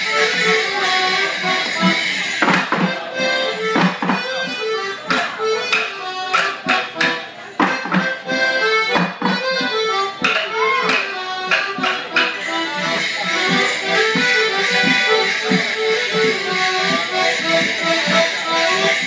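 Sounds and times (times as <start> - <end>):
accordion playing dance tune: 0.0 - 19.0
sharp knocks: 1.8 - 3.0, 3.8 - 4.3, 5.1 - 8.2, 8.9 - 18.2.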